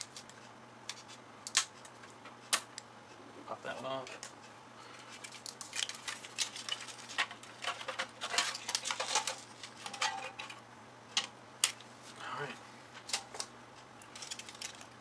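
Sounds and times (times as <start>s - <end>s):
plastic and metal parts clattering: 5.1s - 10.6s, 14.0s - 15.0s.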